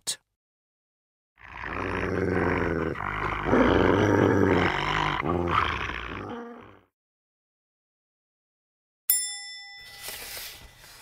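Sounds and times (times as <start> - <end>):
beast growling and roaring: 1.4 - 6.9.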